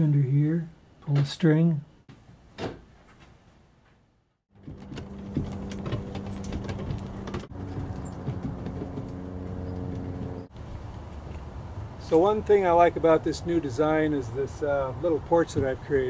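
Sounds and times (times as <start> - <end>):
wheeled dolly rolling over grass: 4.6 - 10.5.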